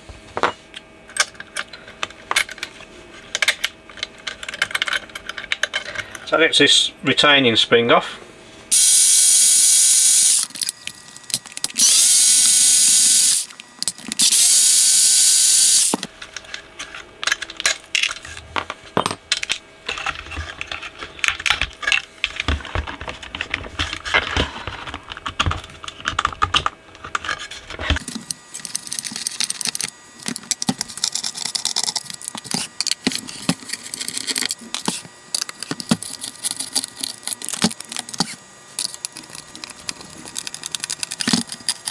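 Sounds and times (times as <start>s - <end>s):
electric screwdriver whining: 8.7s - 10.7s, 11.6s - 16.0s.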